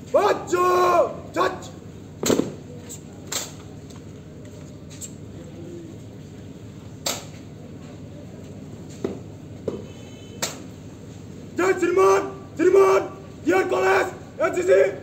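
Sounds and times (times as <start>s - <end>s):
sharp crack: 2.2s - 2.6s, 3.3s - 3.6s, 7.0s - 7.3s, 10.4s - 10.7s.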